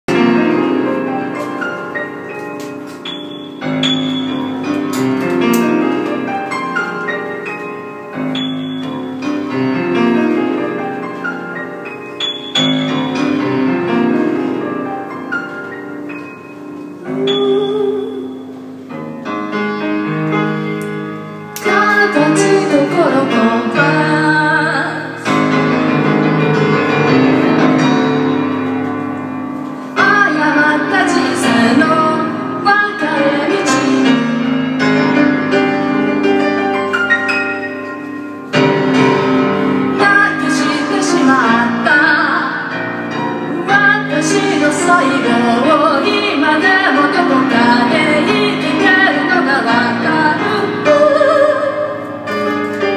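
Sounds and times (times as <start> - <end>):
piano chords: 0.0 - 52.9
woman singing: 17.0 - 18.6, 21.6 - 25.3, 30.0 - 34.5, 39.9 - 42.8, 43.5 - 52.6.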